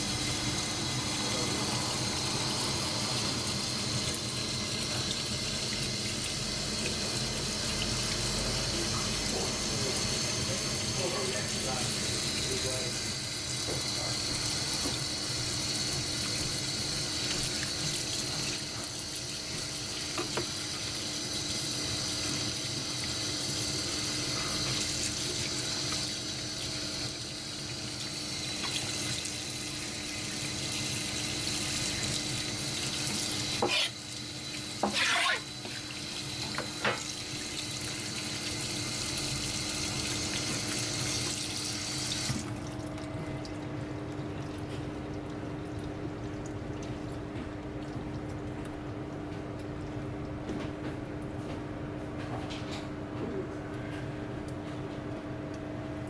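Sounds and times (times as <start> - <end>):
tap running into metal sink: 13.6 - 14.1, 19.6 - 20.8, 34.8 - 37.2.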